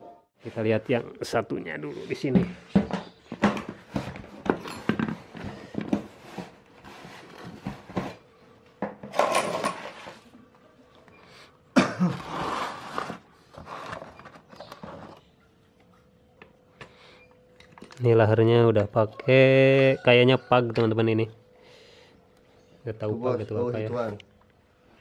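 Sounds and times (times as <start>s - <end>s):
faint steady hum: 13.3s - 25.0s.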